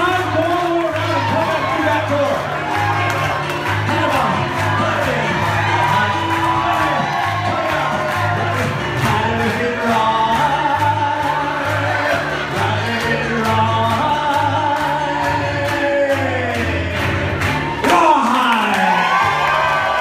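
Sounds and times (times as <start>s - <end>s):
piano bass line: 0.0s - 18.3s
crowd singing along: 2.8s - 18.2s.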